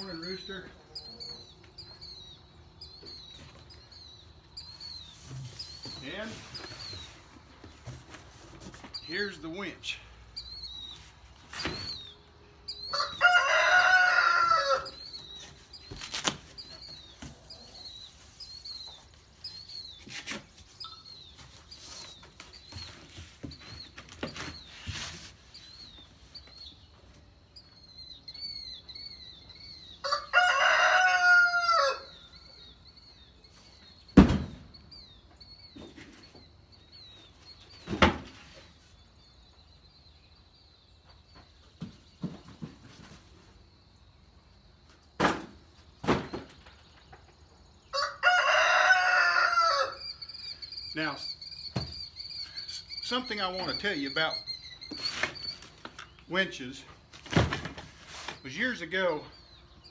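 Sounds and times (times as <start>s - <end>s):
small bird chirping: 0.0s - 7.9s, 8.7s - 13.2s, 14.8s - 30.1s, 49.9s - 57.0s
rooster crowing: 12.9s - 15.0s, 30.0s - 32.2s, 47.9s - 50.1s.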